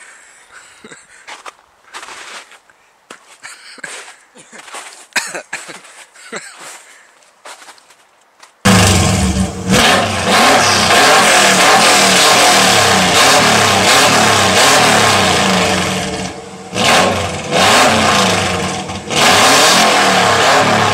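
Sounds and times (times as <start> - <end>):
car engine revving: 8.7 - 20.9.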